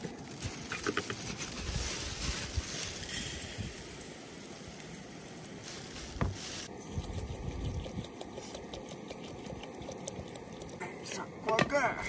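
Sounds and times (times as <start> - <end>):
water pouring into a pot: 7.4 - 10.8.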